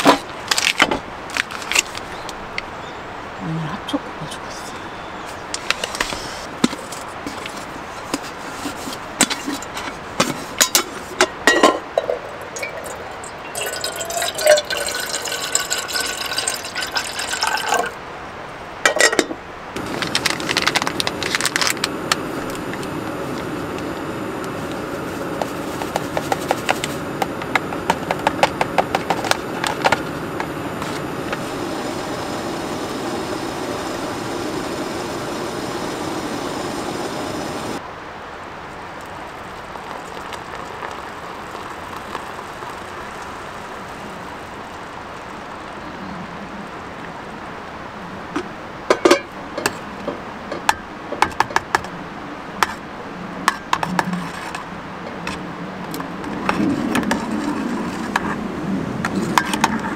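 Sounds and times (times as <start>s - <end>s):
paper rustling: 0.0s - 2.1s, 19.8s - 22.2s
steady rushing noise: 18.0s - 38.7s.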